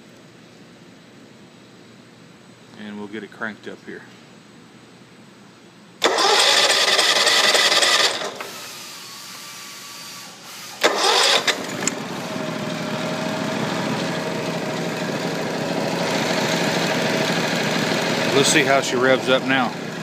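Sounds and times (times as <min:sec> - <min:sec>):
engine cranking and running: 0:06.0 - 0:08.6, 0:10.8 - 0:20.0.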